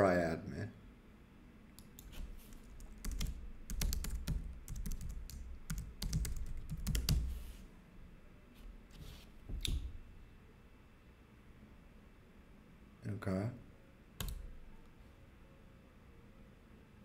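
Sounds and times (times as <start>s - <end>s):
typing on computer keyboard: 1.8s - 7.3s, 14.2s - 14.5s.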